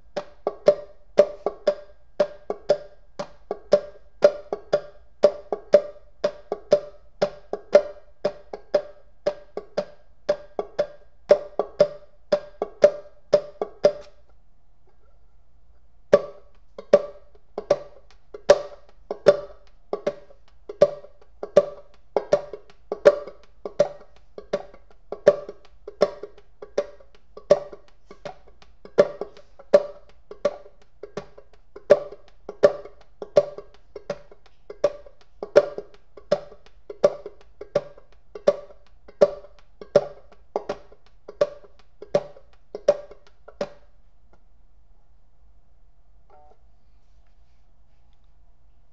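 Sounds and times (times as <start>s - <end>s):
banjo clawhammer playing: 16.2s - 43.7s.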